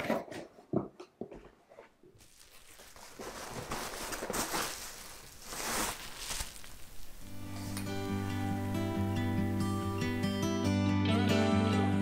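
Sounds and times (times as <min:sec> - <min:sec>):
cardboard rustling: 0:02.2 - 0:10.3.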